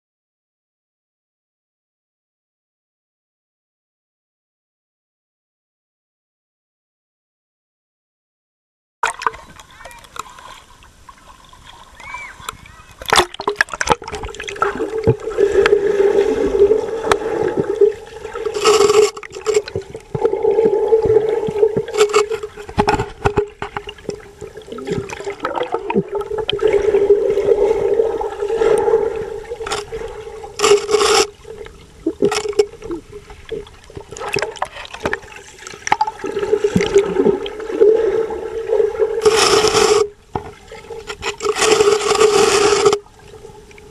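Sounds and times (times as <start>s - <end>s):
water gurgling: 9.0s - 43.9s
bursts of rushing water: 12.0s - 22.7s, 24.0s - 40.1s
underwater motor hum: 13.4s - 43.9s.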